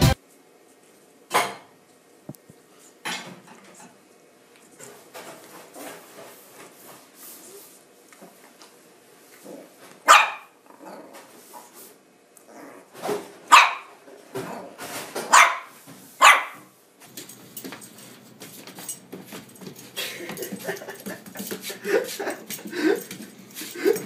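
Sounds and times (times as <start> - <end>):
small puppy yapping: 10.1 - 10.6, 13.5 - 13.9, 15.3 - 16.6.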